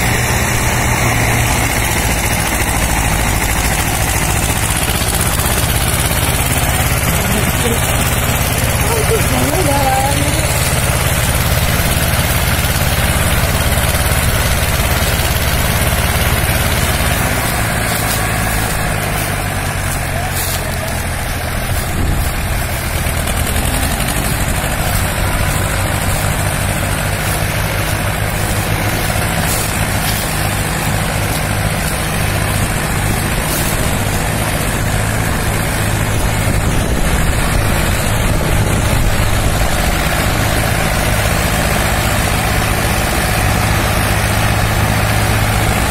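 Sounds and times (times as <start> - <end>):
diesel tractor engines under load: 0.0 - 45.9.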